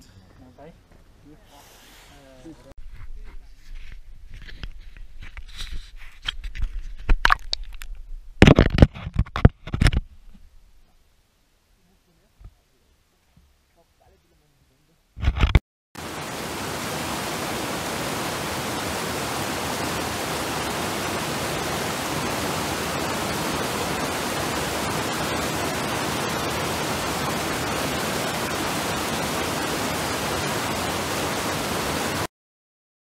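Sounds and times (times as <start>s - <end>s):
stream rushing over rocks: 16.0s - 32.3s.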